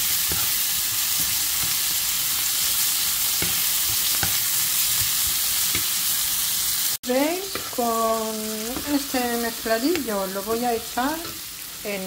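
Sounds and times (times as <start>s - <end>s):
onion and sausage sizzling: 0.0s - 12.0s.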